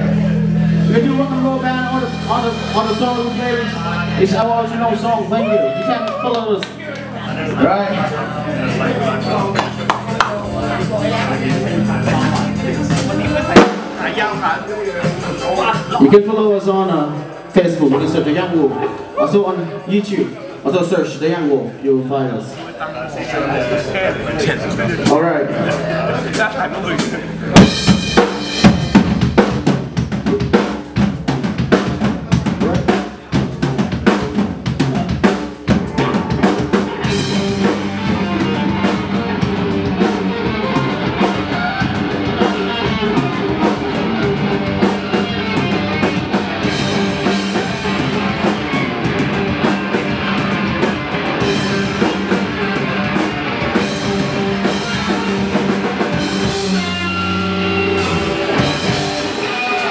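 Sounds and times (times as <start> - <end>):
bass and electric guitars: 0.0 - 21.8, 22.4 - 59.9
drum kit hits: 8.0 - 16.2, 25.0 - 59.9.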